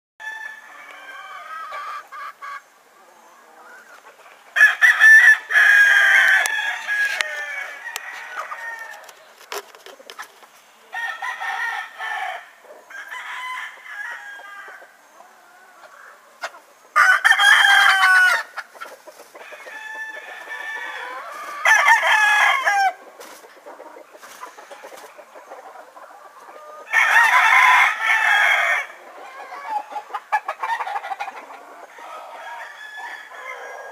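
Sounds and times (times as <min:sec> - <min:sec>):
hens clucking softly: 0:01.0 - 0:04.6, 0:18.4 - 0:21.6, 0:23.0 - 0:26.9, 0:28.9 - 0:32.7
rooster crowing: 0:04.6 - 0:09.1, 0:11.0 - 0:14.9, 0:17.0 - 0:18.5, 0:19.5 - 0:23.0, 0:26.6 - 0:29.8, 0:31.9 - 0:33.9.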